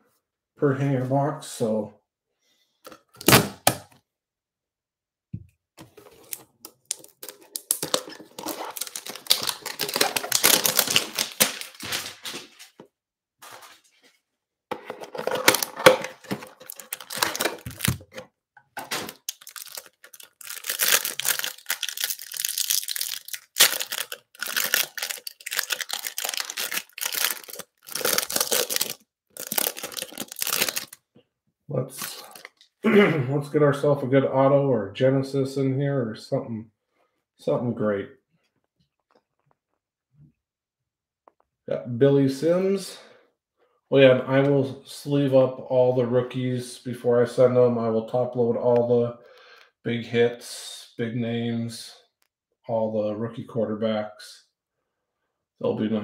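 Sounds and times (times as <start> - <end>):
plastic wrapper crinkling: 6.0 - 12.8, 15.2 - 18.2, 18.8 - 31.0, 32.0 - 32.6.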